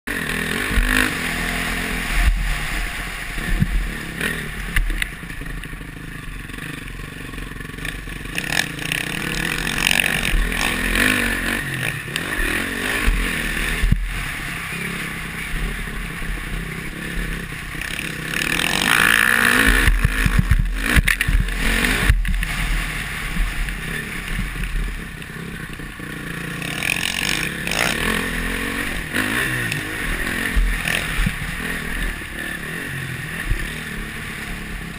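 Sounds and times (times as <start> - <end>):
motocross engine revving: 0.1 - 34.9
wind rumble on microphone: 0.7 - 5.6, 9.3 - 26.0.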